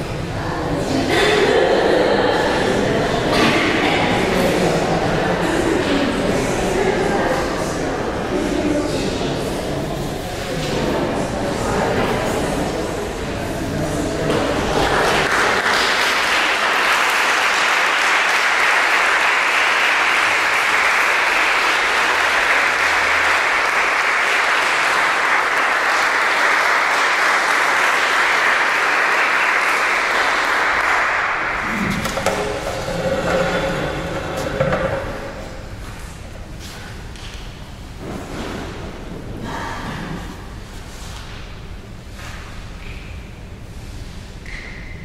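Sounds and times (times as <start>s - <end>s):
audience applauding: 14.6s - 35.3s.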